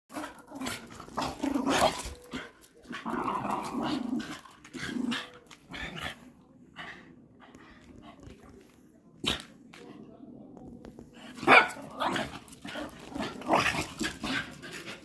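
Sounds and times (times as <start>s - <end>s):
dogs growling in play: 0.1s - 8.0s, 11.2s - 15.0s.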